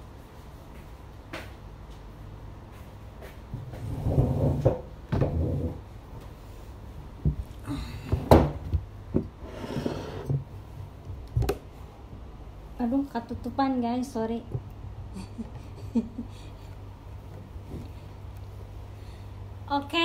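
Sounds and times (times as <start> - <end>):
chair scraping on tiled floor: 3.7 - 5.9, 9.4 - 10.5.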